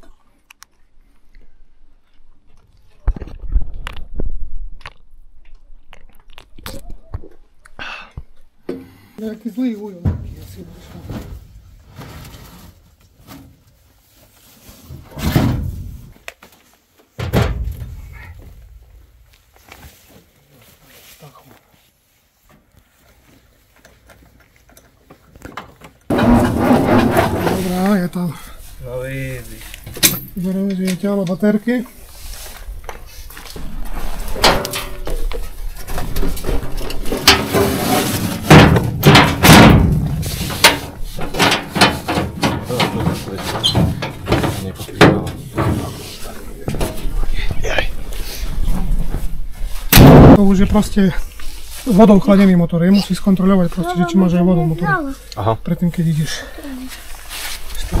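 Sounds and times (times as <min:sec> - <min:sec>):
loud clunks and bangs: 0:17.2 - 0:18.3, 0:26.1 - 0:27.7, 0:38.4 - 0:46.0, 0:49.9 - 0:50.5
heavy thumps: 0:17.2 - 0:19.2, 0:26.1 - 0:51.1.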